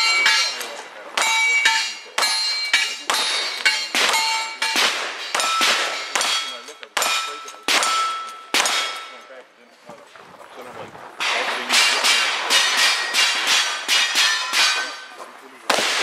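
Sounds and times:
steel target ringing: 0.0 - 9.3, 11.2 - 15.2
gunshots: 2.2 - 9.2, 11.2 - 15.0, 15.6 - 16.0.

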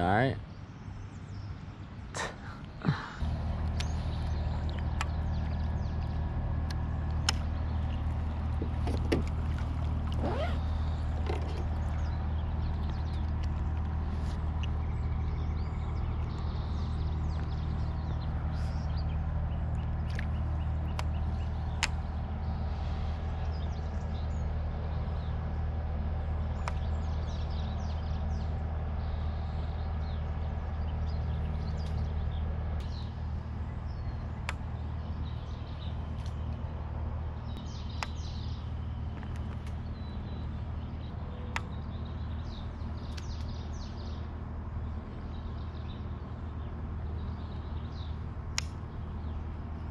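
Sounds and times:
birds chirping: 0.0 - 49.9
low mechanical hum: 0.0 - 49.9
sharp clicks: 48.5 - 48.9.

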